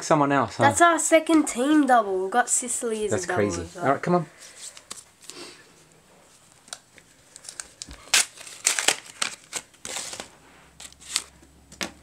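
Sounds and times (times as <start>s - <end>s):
wrapper crinkling and tearing: 6.5s - 11.4s.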